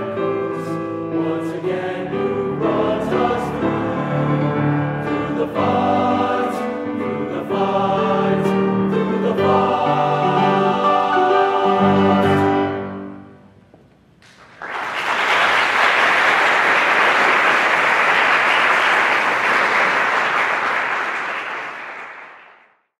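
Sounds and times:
male choir chord: 0:00.0 - 0:13.3
audience applause: 0:14.3 - 0:22.8.

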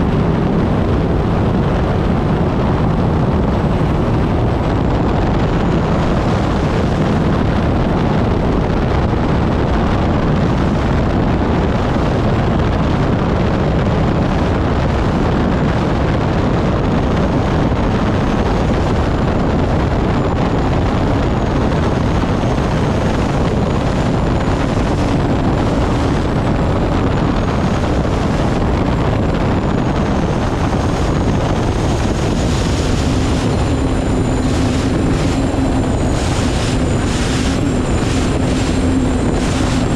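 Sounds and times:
turbine engine loud rush: 0:00.0 - 0:39.9
wind on microphone: 0:00.0 - 0:39.9.

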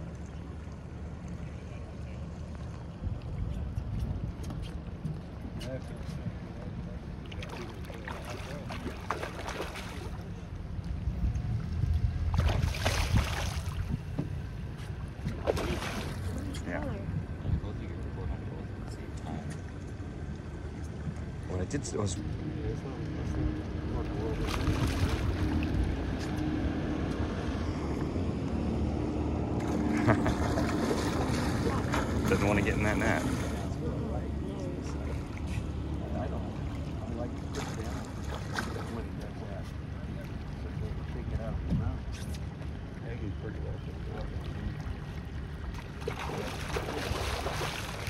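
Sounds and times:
steady low rumble: 0:00.0 - 0:48.0
fish thrashing and splashing: 0:07.4 - 0:10.3, 0:12.3 - 0:13.9, 0:15.3 - 0:16.5, 0:45.5 - 0:48.0.

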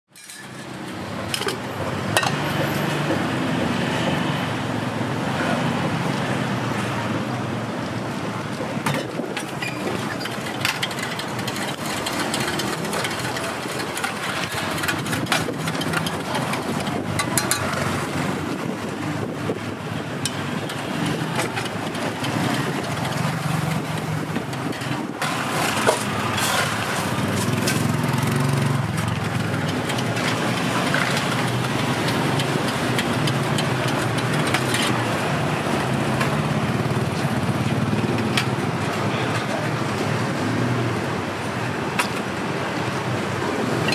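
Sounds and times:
street traffic: 0:00.1 - 0:43.9
metal spoon clinking steel cups: 0:00.2 - 0:00.7.

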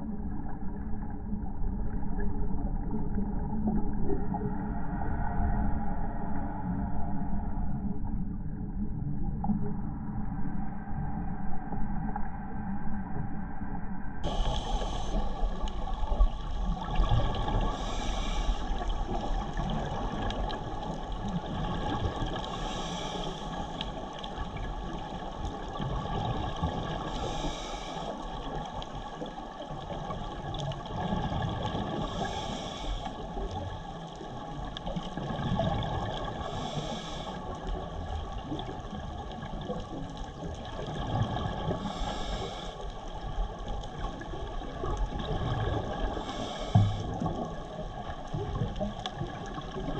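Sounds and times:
scuba regulator inhalation hiss: 0:14.3 - 0:15.4, 0:17.8 - 0:18.7, 0:27.1 - 0:28.2, 0:32.0 - 0:33.1, 0:36.5 - 0:37.4, 0:41.9 - 0:42.8, 0:46.2 - 0:47.1.

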